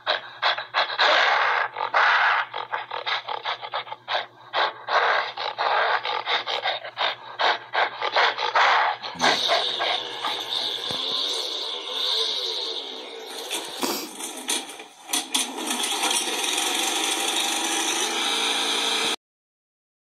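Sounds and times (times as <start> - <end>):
steady low hum: 0.0 - 14.2.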